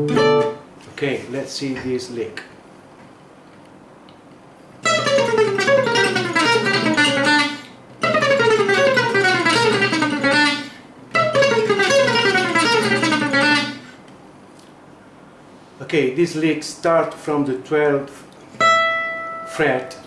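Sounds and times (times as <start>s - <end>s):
acoustic guitar lick: 0.0s - 0.7s, 4.8s - 14.0s, 18.6s - 20.0s.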